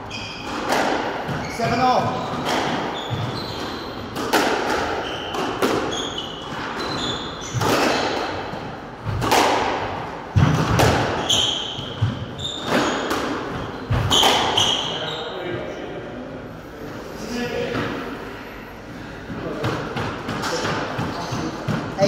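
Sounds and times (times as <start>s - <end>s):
shoes squeaking on wooden floor: 0.0s - 8.2s, 11.1s - 15.4s
squash ball hitting rackets and walls: 0.0s - 15.1s, 19.3s - 22.0s.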